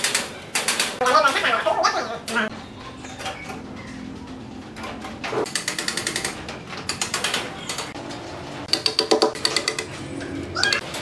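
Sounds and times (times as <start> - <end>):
rapid metallic clicking: 5.4 - 8.0.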